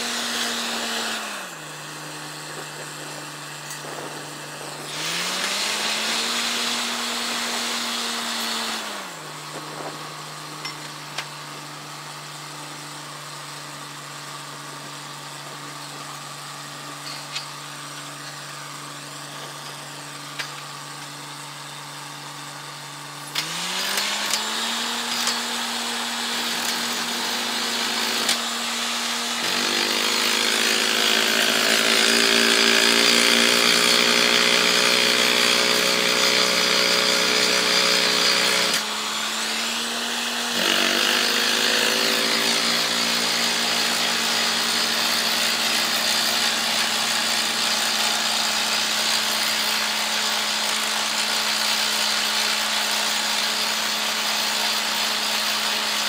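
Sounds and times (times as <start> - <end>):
drilling rig engine whining: 22.8 - 50.8.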